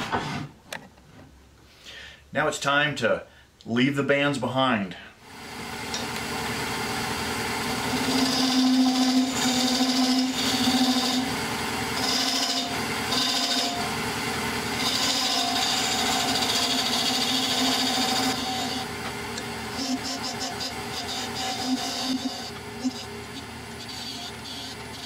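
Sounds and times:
wood lathe humming: 0:05.3 - 0:25.0
chisel scraping hiss: 0:07.9 - 0:13.9, 0:14.8 - 0:18.9, 0:19.7 - 0:25.0.

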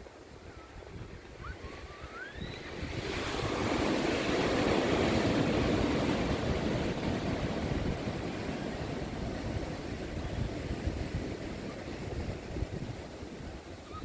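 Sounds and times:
wind: 0:00.0 - 0:14.0
wave breaking: 0:01.6 - 0:11.6.

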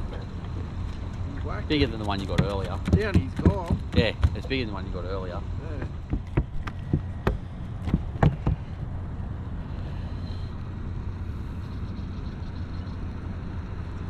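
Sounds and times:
fish thumping on deck: 0:02.1 - 0:04.6, 0:05.8 - 0:08.8.

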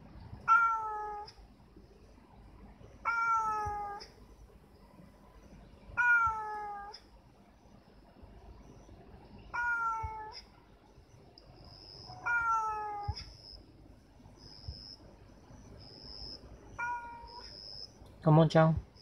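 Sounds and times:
cat meowing: 0:00.4 - 0:01.4, 0:03.0 - 0:04.1, 0:06.0 - 0:07.0, 0:09.5 - 0:10.5, 0:12.1 - 0:13.4, 0:16.8 - 0:17.5.

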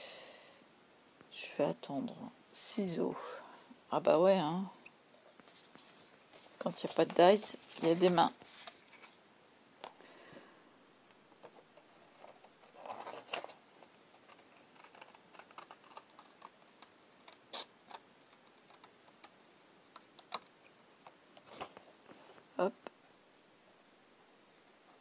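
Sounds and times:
card rustling: 0:05.3 - 0:09.2, 0:11.4 - 0:17.6.

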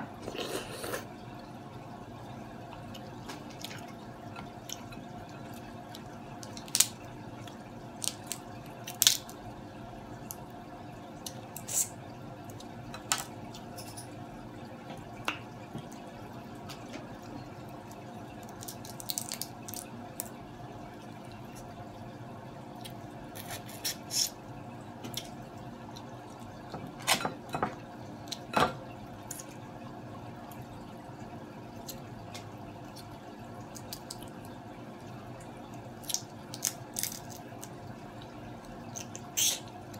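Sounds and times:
low background hum: 0:00.0 - 0:39.9
crab shell cracking: 0:06.4 - 0:07.0, 0:08.0 - 0:09.4, 0:18.4 - 0:20.3, 0:33.7 - 0:34.3, 0:36.0 - 0:37.8
small wet clicks and smacks: 0:31.8 - 0:34.5.

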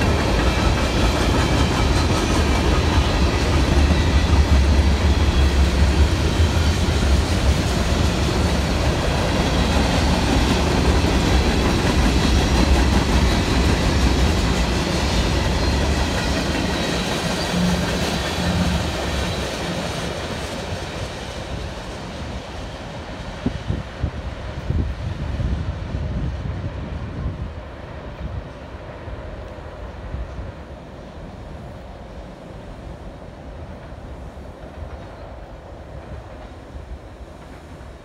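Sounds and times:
train wheels rumbling and clattering: 0:00.0 - 0:38.0.

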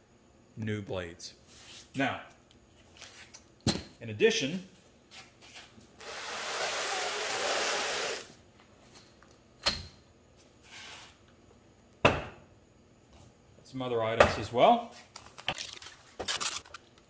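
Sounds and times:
paper and plastic packaging rustling: 0:15.1 - 0:16.9.

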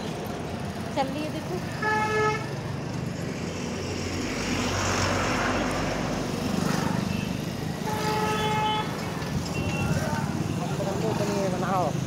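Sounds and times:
vehicle passing close by: 0:02.7 - 0:12.0.

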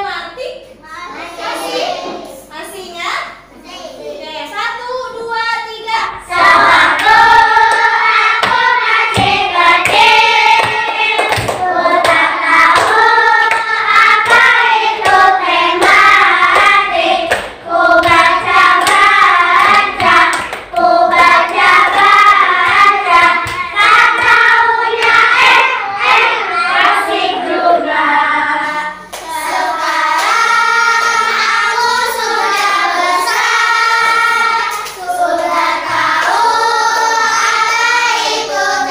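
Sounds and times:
children singing together: 0:01.1 - 0:02.4, 0:06.2 - 0:38.9
children clapping: 0:06.4 - 0:27.1, 0:29.1 - 0:38.9.

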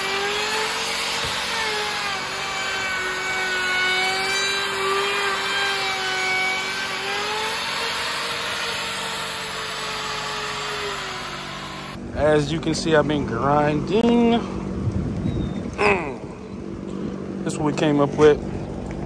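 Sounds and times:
power tool cutting wood: 0:00.0 - 0:12.0.

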